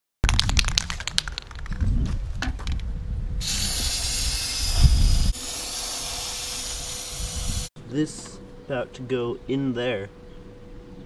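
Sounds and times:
spray can rattling: 0:03.4 - 0:07.6
spray can hissing: 0:03.4 - 0:07.7.

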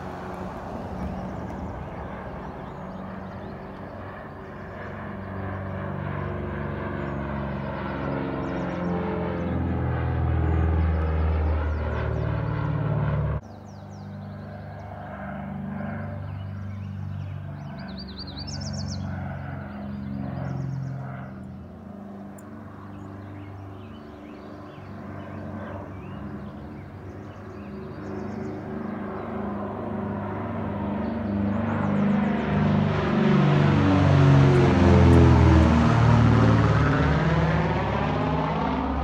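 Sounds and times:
birds chirping: 0:00.0 - 0:39.0
propeller plane droning overhead: 0:00.0 - 0:39.0.

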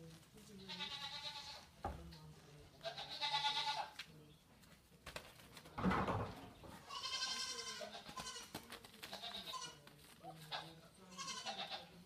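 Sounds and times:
goat kids bleating: 0:00.6 - 0:01.7, 0:02.8 - 0:04.0, 0:06.8 - 0:12.0.

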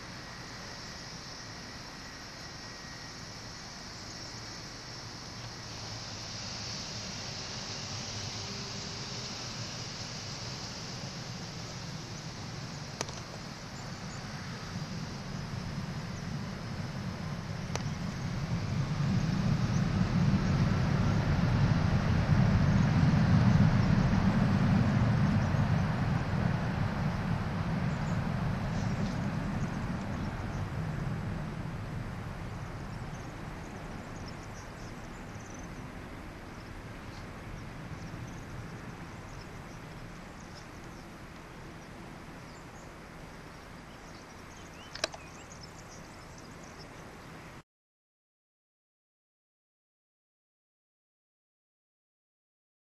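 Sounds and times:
jet engine rumble with whine: 0:00.0 - 0:47.6
sharp click: 0:44.9 - 0:45.3.

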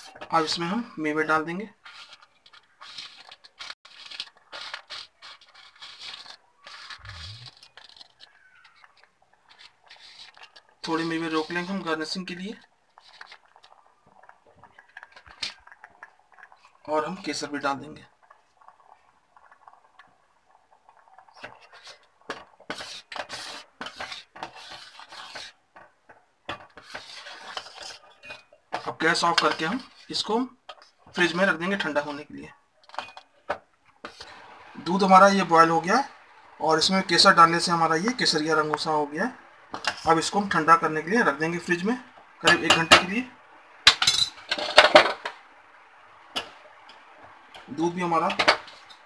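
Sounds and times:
spoon scraping metal pan: 0:01.7 - 0:12.2, 0:21.3 - 0:31.5, 0:39.7 - 0:40.9, 0:42.4 - 0:43.2, 0:43.9 - 0:45.4
metal ladle stirring in metal pot: 0:01.7 - 0:31.5, 0:39.7 - 0:40.6.

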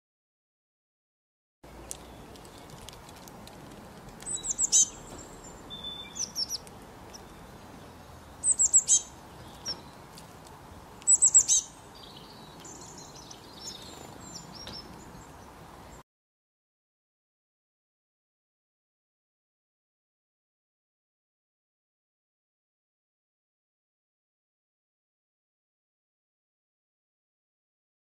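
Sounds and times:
bird chirping: 0:01.7 - 0:03.0, 0:03.8 - 0:16.0.

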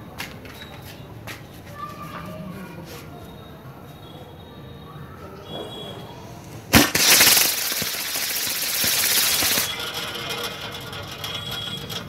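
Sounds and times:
firework bang: 0:06.7 - 0:09.8
firework rockets hissing: 0:06.7 - 0:09.9.

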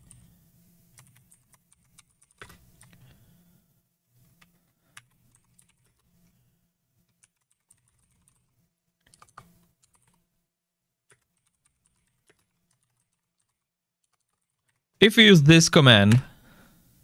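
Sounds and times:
keyboard typing: 0:05.0 - 0:06.1, 0:07.1 - 0:10.2, 0:11.1 - 0:14.8.

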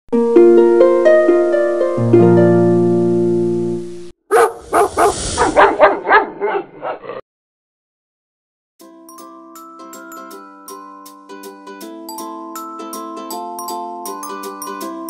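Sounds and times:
plucked harp chord: 0:00.2 - 0:03.9
dog barking rapidly: 0:04.3 - 0:07.0.

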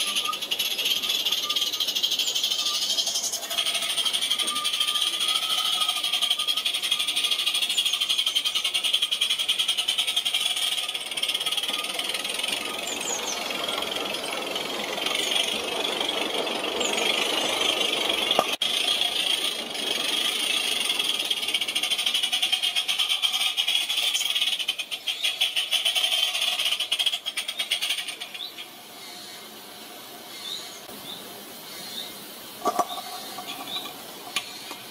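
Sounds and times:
model steam locomotive chuffing: 0:00.0 - 0:30.9, 0:31.8 - 0:34.9
steady steam hiss: 0:28.4 - 0:34.9.

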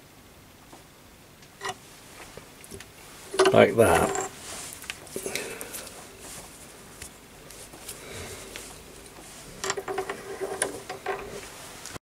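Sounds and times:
small steel parts clicking: 0:09.6 - 0:11.3.

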